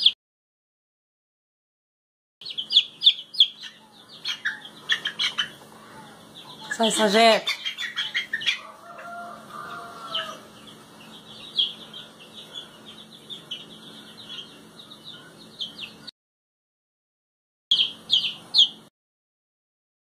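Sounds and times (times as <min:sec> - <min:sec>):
chick peeping: 0:02.4 - 0:16.1, 0:17.7 - 0:18.9
low drawn-out chick call: 0:07.9 - 0:10.6.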